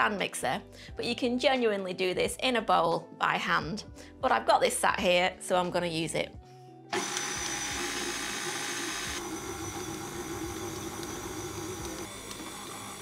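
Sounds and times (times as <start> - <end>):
stand mixer motor running: 7.0 - 13.0.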